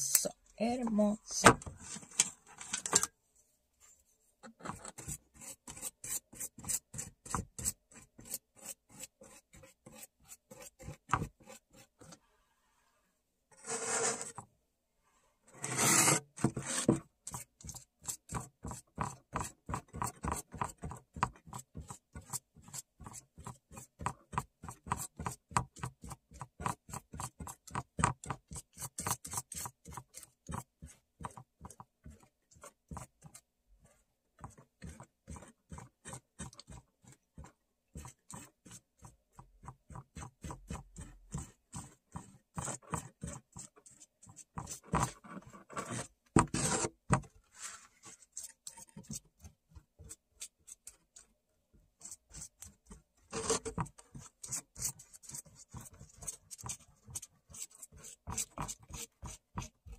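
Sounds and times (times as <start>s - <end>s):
paintbrush dabbing on foil: 4.7s - 12.3s, 17.1s - 46.1s, 47.2s - 59.9s.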